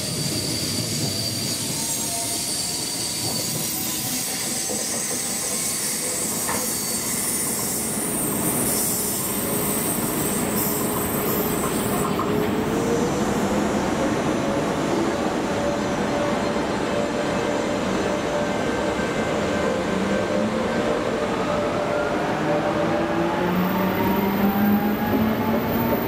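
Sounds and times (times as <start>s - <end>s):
train wheel squeal: 0.0s - 26.0s.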